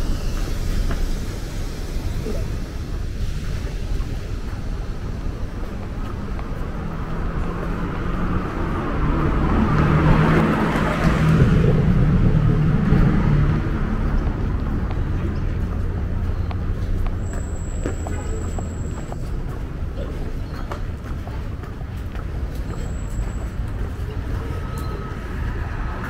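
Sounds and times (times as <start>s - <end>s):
low rumble of street noise: 0.0s - 26.0s
car driving past: 6.6s - 15.9s.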